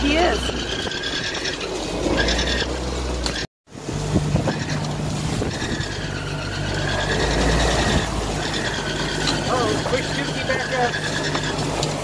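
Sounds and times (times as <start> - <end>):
waves splashing along hull: 0.0 - 12.0
wind buffeting microphone: 3.7 - 12.0.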